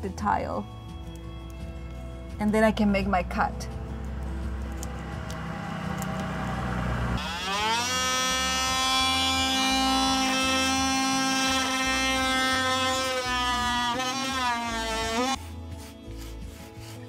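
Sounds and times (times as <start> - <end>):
oscillating multi-tool whining: 7.2 - 15.4.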